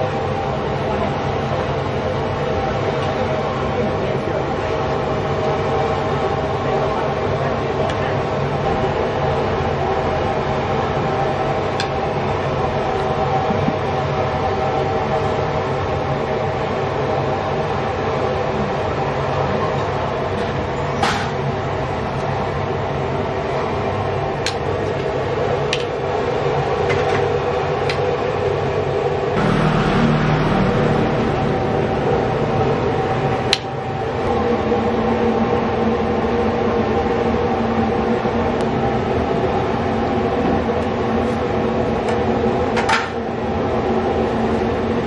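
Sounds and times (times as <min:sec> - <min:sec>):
mechanical drone: 0:29.4 - 0:35.4.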